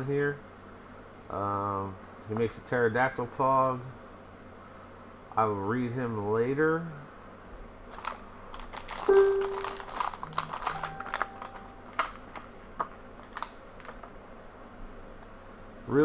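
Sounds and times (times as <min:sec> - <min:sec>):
foil and plastic crinkling: 0:07.9 - 0:12.4, 0:13.2 - 0:14.1.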